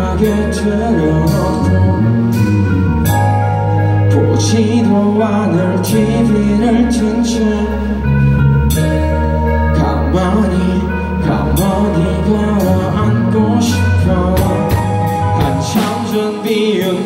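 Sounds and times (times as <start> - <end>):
electric bass: 0.0 - 17.0
electric guitars: 0.0 - 17.0
drums with cymbal hits: 14.3 - 17.0.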